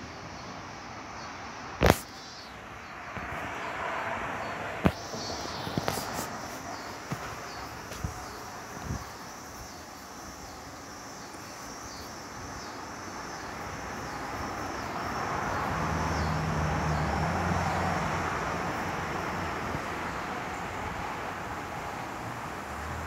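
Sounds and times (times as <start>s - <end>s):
passing engine hum: 1.8s - 9.6s, 12.8s - 23.0s.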